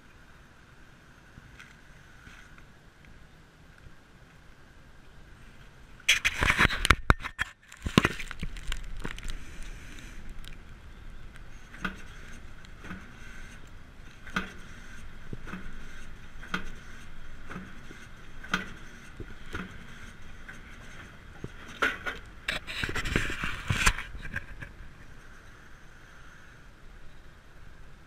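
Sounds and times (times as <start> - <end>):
metallic clatter and rattle: 11.5 - 24.8.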